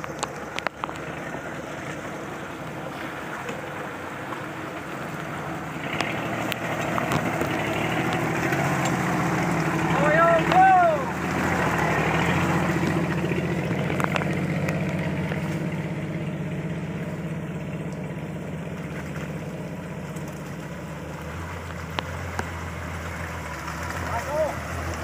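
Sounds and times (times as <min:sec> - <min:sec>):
vehicle engine under load: 0:00.0 - 0:25.0.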